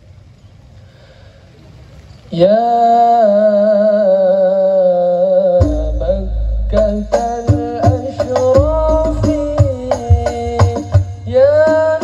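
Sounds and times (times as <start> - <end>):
man singing: 2.3 - 12.0
frame drums and bass drum: 5.6 - 12.0.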